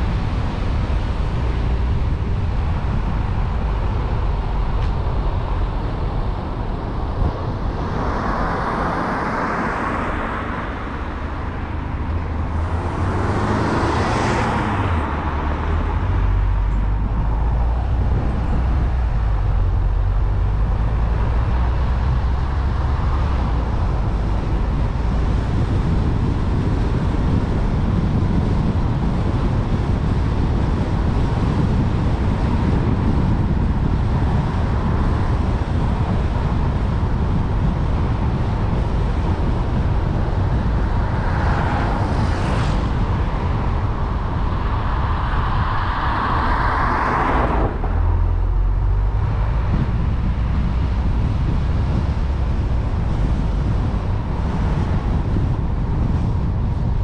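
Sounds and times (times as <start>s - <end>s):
car engine and road noise: 0.0s - 57.0s
oncoming car passing: 7.2s - 25.5s, 39.8s - 52.6s.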